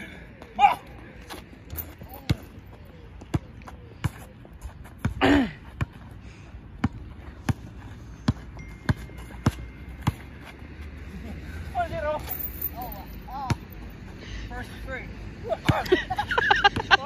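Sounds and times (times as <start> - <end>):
person shouting: 0.6 - 0.9.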